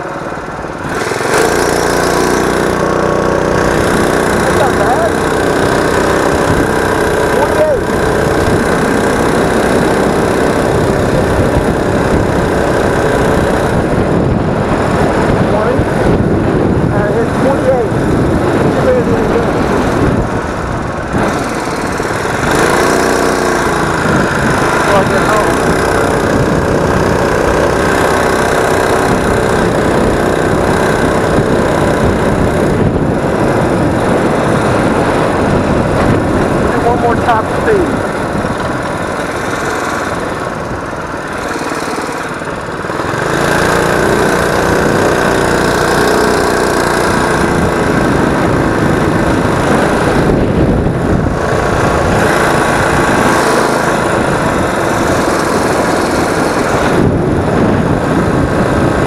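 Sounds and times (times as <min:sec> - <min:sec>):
small engine running: 0:00.0 - 0:59.0
wind on microphone: 0:00.0 - 0:59.0.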